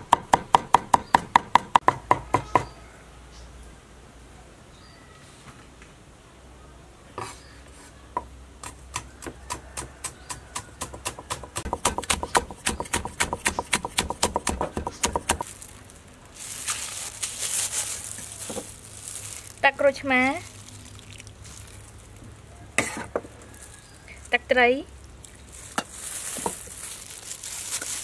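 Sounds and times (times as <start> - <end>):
cleaver chopping on wooden block: 0.1 - 2.7, 8.6 - 15.4.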